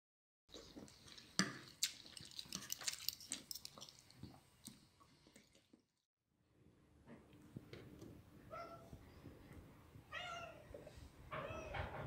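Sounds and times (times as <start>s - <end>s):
eating sounds: 0.5s - 6.0s.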